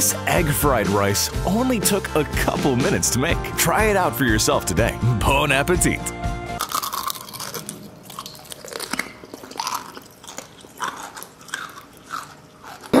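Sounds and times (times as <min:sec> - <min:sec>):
eggshells crackling: 0:06.6 - 0:12.9.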